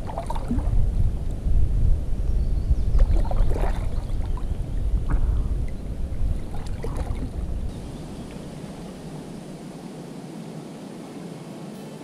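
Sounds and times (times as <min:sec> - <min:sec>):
paddle strokes splashing: 0:00.0 - 0:00.8, 0:03.0 - 0:10.1
steady low rumble: 0:00.0 - 0:10.1.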